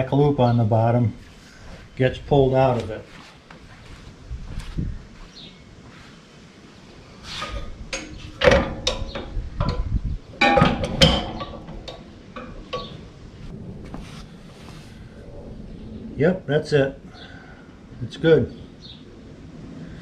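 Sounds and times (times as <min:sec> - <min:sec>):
tiller metallic clunks and rattles: 0:07.4 - 0:13.2.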